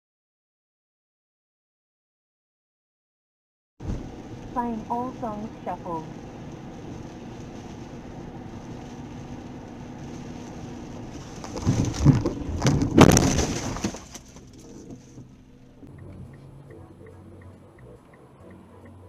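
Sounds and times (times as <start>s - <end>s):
rumbling with cracking knocks: 3.8s - 4.8s, 6.1s - 16.9s
car cabin road noise: 3.8s - 19.0s.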